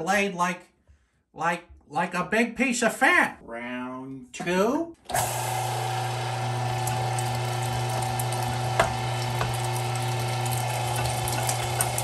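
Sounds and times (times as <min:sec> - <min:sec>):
electric meat grinder running: 0:05.1 - 0:12.0.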